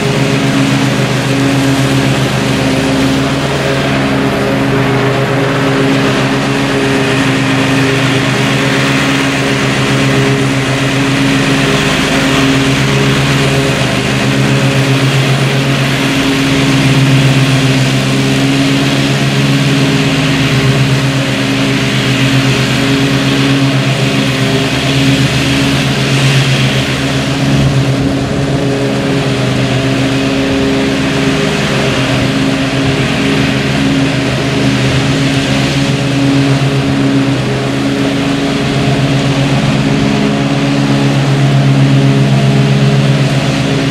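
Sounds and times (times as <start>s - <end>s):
mower blades cutting grass: 0.0s - 43.9s
riding mower engine under load: 0.0s - 43.9s.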